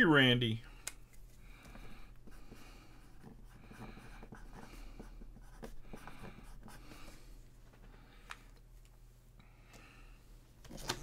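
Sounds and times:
marker scratching on cardboard: 0:01.7 - 0:07.2.

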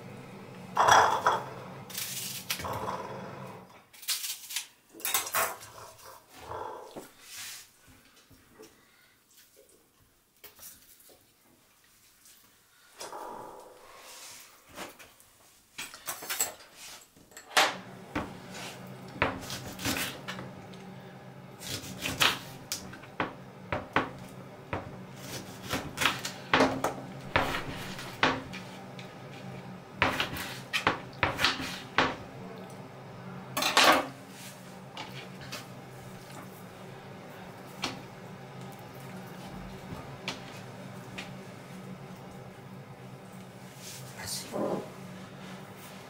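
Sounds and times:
low steady hum: 0:00.0 - 0:03.8, 0:17.6 - 0:46.0.

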